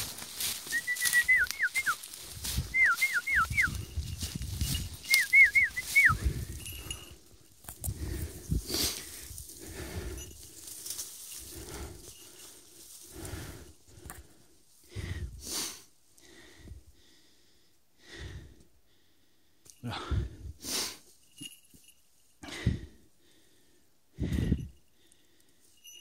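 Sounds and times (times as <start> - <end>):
person breathing hard: 6.1 - 21.1, 22.4 - 25.6.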